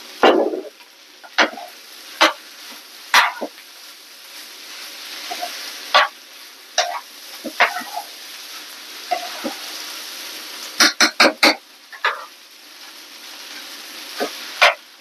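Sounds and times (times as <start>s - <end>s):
food sizzling in a pan: 0.0s - 15.0s
utensil scraping a pan: 1.3s - 2.4s, 3.2s - 3.5s, 5.3s - 6.2s, 6.8s - 8.2s, 9.1s - 9.8s, 14.2s - 14.8s.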